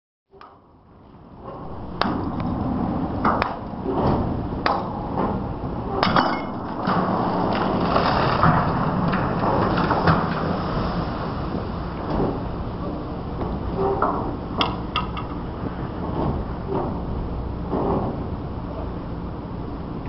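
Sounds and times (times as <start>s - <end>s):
water rushing and crashing: 1.6s - 4.7s, 6.3s - 12.8s
metal clanks and knocks: 3.2s - 10.8s.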